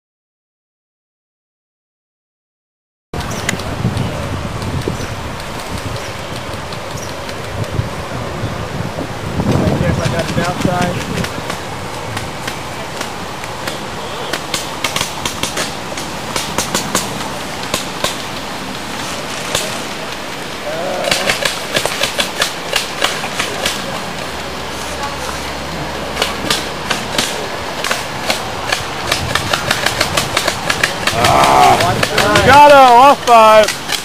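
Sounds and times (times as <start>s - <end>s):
outdoor noise: 3.1s - 34.0s.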